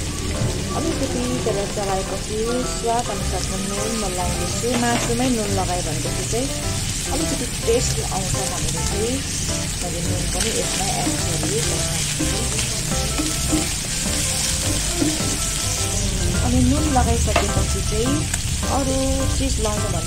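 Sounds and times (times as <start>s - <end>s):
pork sizzling in hot oil: 0.0s - 20.0s
wooden spatula stirring in pan: 6.9s - 18.8s.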